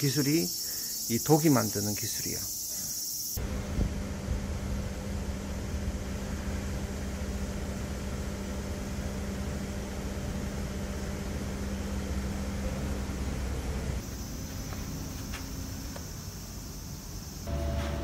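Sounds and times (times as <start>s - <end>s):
crickets chirping: 0.0s - 3.5s, 5.3s - 17.6s
steady mechanical hum: 0.0s - 18.0s
street noise: 11.7s - 18.0s.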